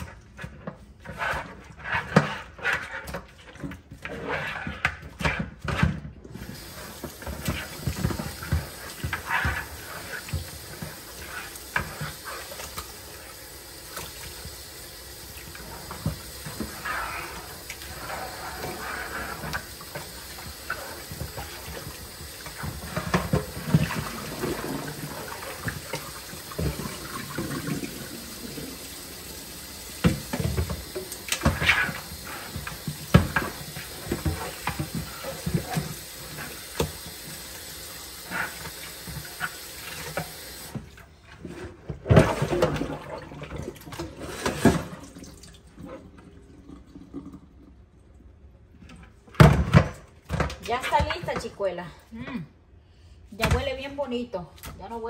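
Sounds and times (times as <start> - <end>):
tap running into sink: 15.4 - 37.6
knocks and splashes: 19.4 - 28.8, 29.9 - 37.4, 41.8 - 45.8.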